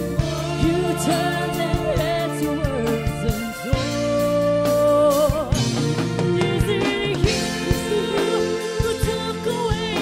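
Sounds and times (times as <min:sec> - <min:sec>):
pop band playing: 0:00.0 - 0:10.0
steady drum beat: 0:00.0 - 0:10.0.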